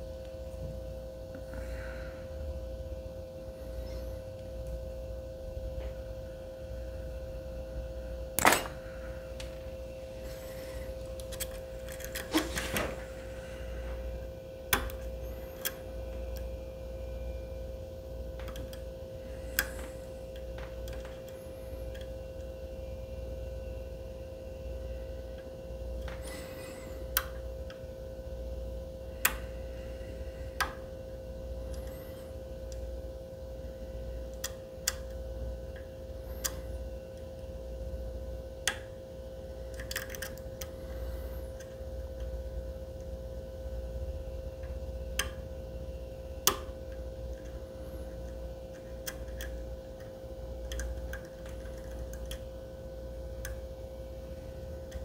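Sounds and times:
steady hum: 0.0s - 55.0s
lock pick clicking in lock: 39.7s - 40.5s, 48.7s - 52.5s.

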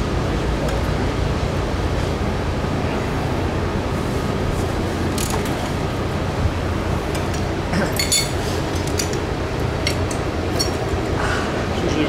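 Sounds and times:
steady low rumble: 0.0s - 12.0s
metal tools clinking: 7.9s - 9.2s.

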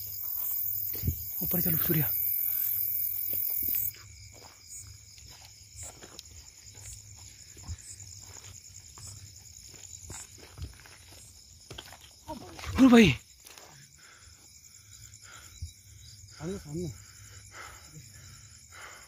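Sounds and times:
footsteps on grass: 0.0s - 13.8s
insects trilling: 0.0s - 19.0s.

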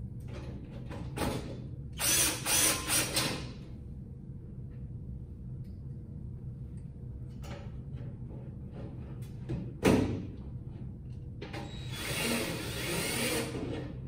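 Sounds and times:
cordless drill whirring: 2.0s - 3.2s, 11.7s - 13.6s.

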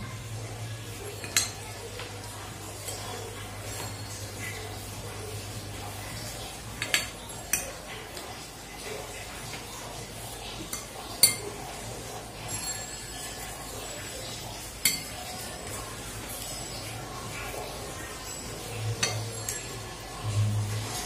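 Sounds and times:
metal spoon clinking on plate: 10.7s - 11.5s, 14.8s - 15.8s, 18.3s - 19.9s.

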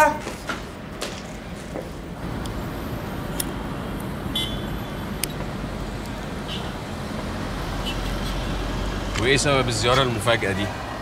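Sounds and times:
city traffic rumble: 0.0s - 11.0s.

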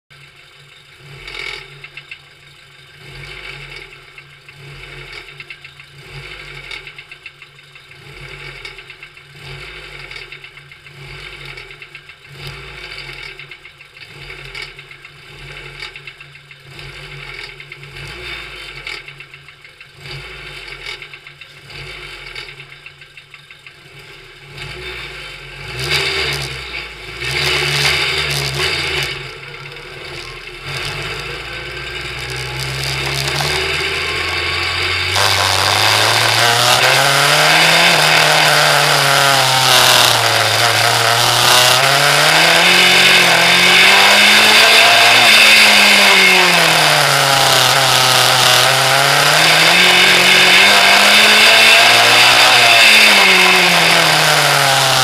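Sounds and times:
racing car engine revving: 23.7s - 55.0s.

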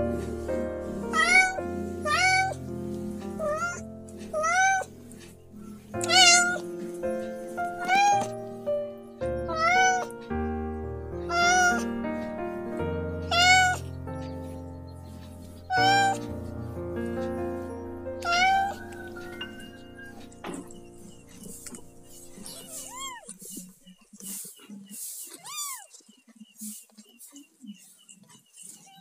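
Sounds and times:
background music: 0.0s - 22.9s
cat meowing: 1.1s - 2.6s, 3.4s - 5.0s, 6.0s - 6.7s, 7.6s - 8.4s, 9.3s - 10.2s, 11.2s - 11.9s, 13.2s - 13.9s, 15.7s - 16.3s, 18.2s - 20.2s, 22.4s - 23.3s, 25.3s - 25.9s.

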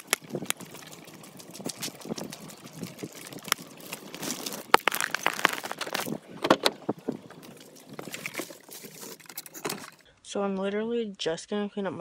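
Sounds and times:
footsteps on wet gritty ground: 0.0s - 9.2s.

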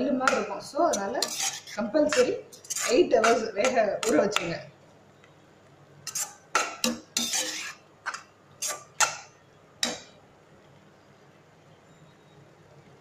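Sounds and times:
metal spoon scraping frying pan: 0.2s - 4.5s, 6.0s - 10.1s.

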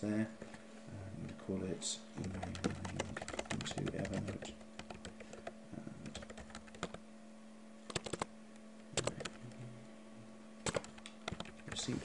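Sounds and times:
typing on a keyboard: 2.2s - 7.0s, 7.9s - 8.3s, 10.6s - 11.8s.

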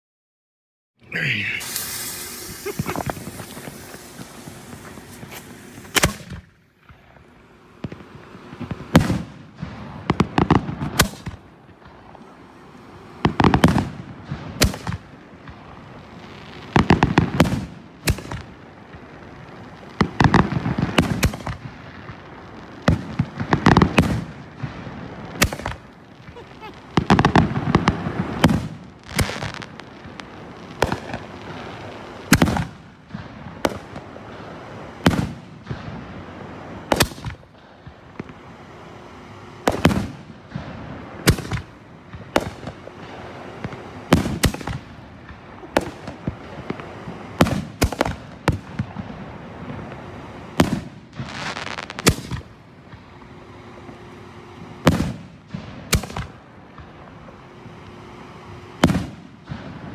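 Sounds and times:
firework shells banging: 1.4s - 15.7s.

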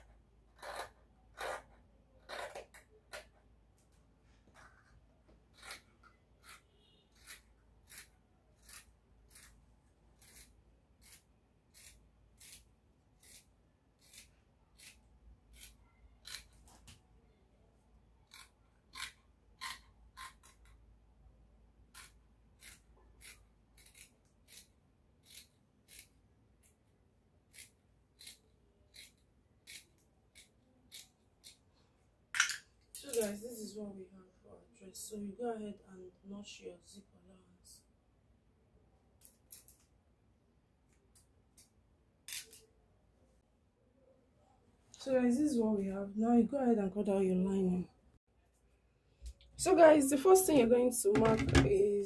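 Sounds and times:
scissors cutting fabric: 0.0s - 3.4s, 4.6s - 17.0s, 18.2s - 20.8s, 21.9s - 31.7s.

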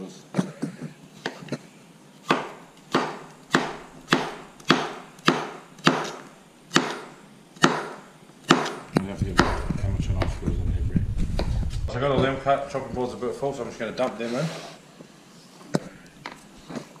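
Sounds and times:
knife chopping cucumber on board: 2.2s - 7.0s, 7.6s - 10.4s.

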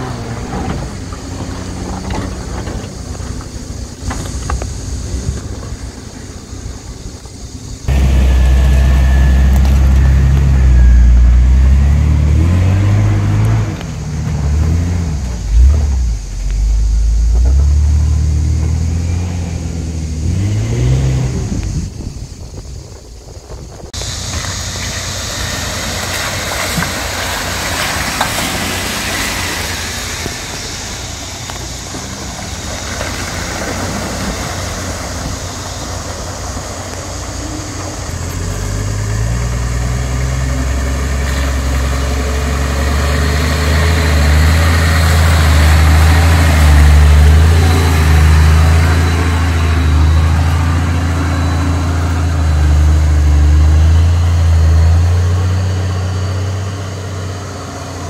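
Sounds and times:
off-road engines crawling: 0.0s - 58.0s
truck pushing through mud and water: 0.0s - 58.0s.

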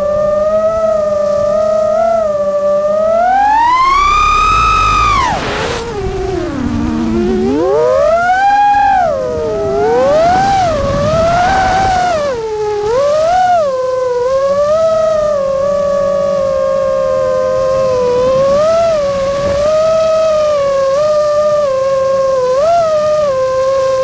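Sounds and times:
drone motors whining: 0.0s - 24.0s
rush of air: 3.4s - 12.6s.

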